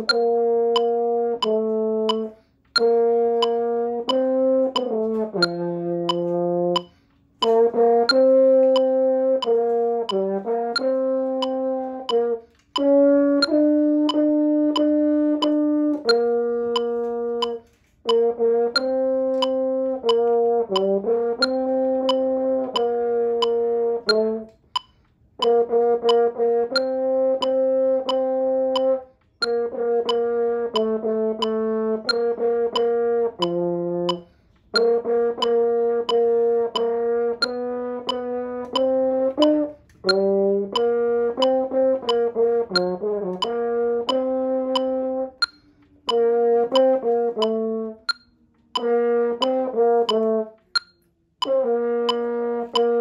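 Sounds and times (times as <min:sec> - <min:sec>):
french horn melody: 0:00.0 - 0:06.8, 0:07.4 - 0:17.5, 0:18.1 - 0:24.5, 0:25.5 - 0:28.8, 0:29.5 - 0:34.2, 0:34.8 - 0:45.4
metronome clicking: 0:00.0 - 0:53.0.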